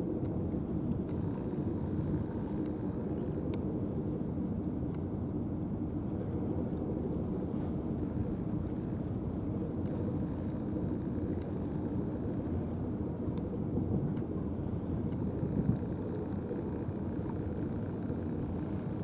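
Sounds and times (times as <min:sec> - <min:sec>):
low rumbling background noise: 0:00.0 - 0:19.0
faint ticks: 0:00.2 - 0:03.7, 0:07.6 - 0:19.0.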